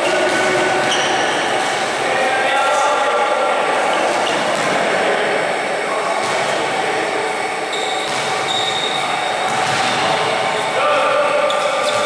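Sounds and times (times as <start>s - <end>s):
sneakers squeaking on court: 0.0s - 1.9s, 3.8s - 4.8s, 7.4s - 10.7s, 11.4s - 12.0s
rushing background noise: 0.0s - 12.0s.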